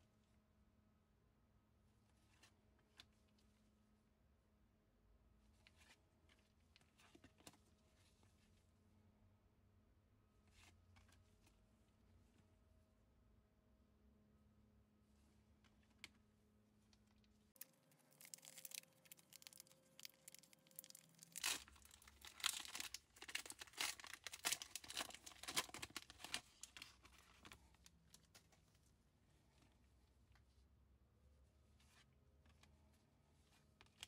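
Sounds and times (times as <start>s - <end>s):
foil wrapper crinkling and tearing: 17.6s - 27.5s.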